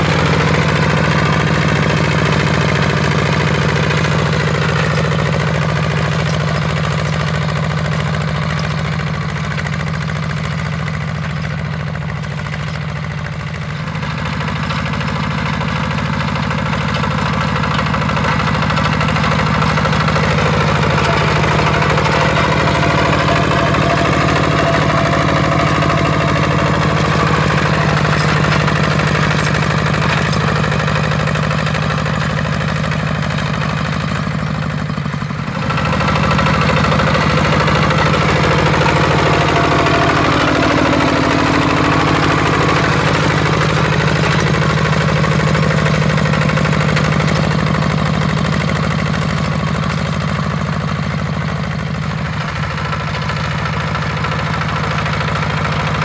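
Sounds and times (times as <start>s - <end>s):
diesel tractor engine running: 0.0s - 56.0s.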